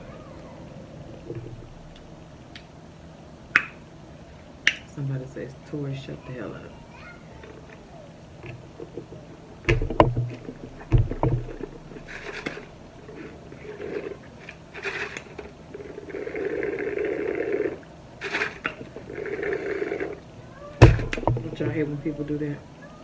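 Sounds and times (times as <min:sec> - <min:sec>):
low thumps: 0:09.6 - 0:12.2, 0:20.8 - 0:22.3.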